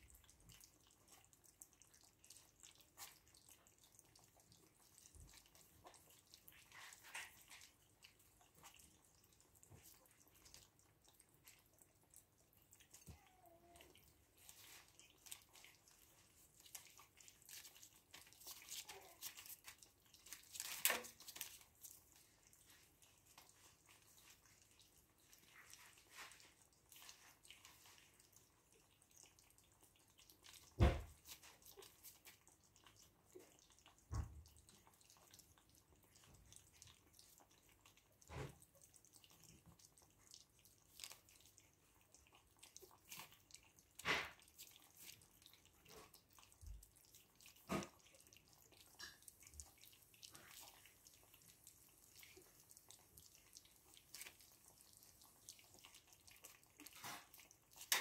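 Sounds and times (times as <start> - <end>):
puppies lapping and chewing: 0.0 - 58.0.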